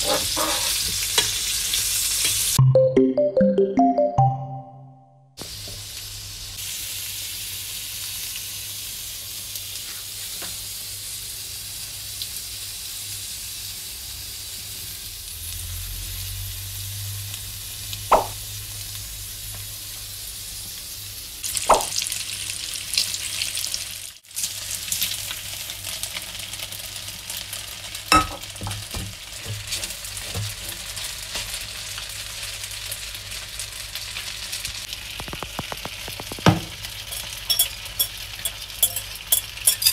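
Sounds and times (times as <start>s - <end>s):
food sizzling in a pot: 0.0s - 2.6s, 5.4s - 39.9s
spaghetti boiling in a pot: 5.4s - 18.0s, 21.2s - 39.9s.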